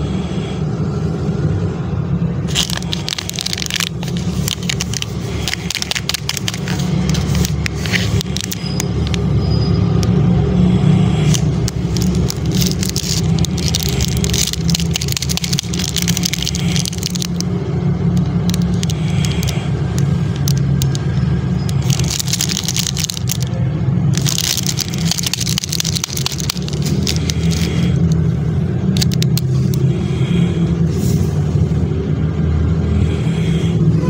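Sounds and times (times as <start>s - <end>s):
steady low rumble: 0.0s - 9.4s, 10.0s - 34.0s
plastic wrapper crinkling: 2.4s - 9.3s, 11.2s - 29.8s.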